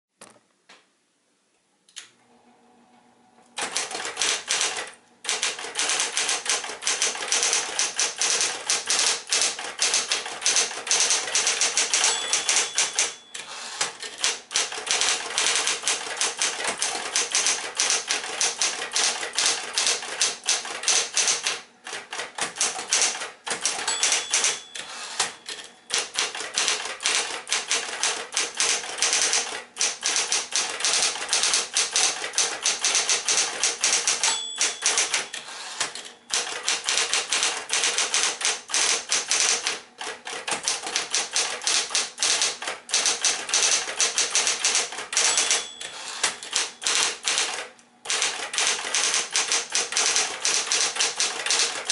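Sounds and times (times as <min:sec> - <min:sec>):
typewriter bell ring: 0:03.6 - 0:21.5, 0:22.9 - 0:29.4, 0:30.1 - 0:35.7, 0:41.4 - 0:47.5, 0:48.1 - 0:51.9
electric typewriter typing: 0:03.6 - 0:51.9
typewriter motor hum: 0:03.6 - 0:51.9.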